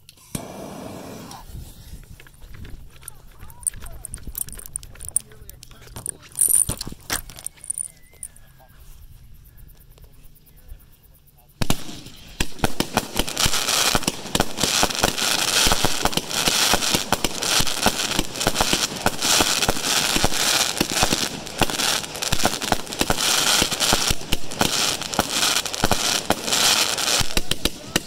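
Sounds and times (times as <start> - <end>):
steady high hiss: 0.0 - 2.3, 2.9 - 28.0
firework cake firing shots: 0.3 - 1.4, 11.6 - 28.0.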